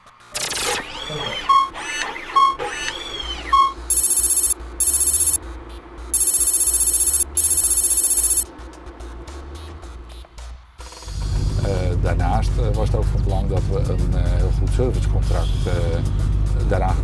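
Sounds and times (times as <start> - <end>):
buzzing electronic tones: 3.9 - 5.4, 6.2 - 8.4
short electronic beep: 3.9 - 5.4, 6.2 - 8.4
sweeping electronic chirp: 3.9 - 5.4, 6.2 - 8.4.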